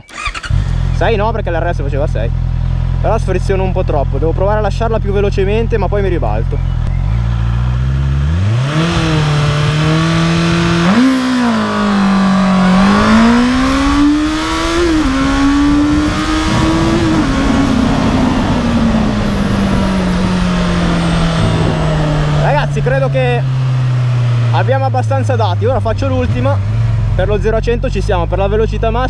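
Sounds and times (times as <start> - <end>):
motorcycle engine revving: 0.0 - 1.6, 6.6 - 27.6.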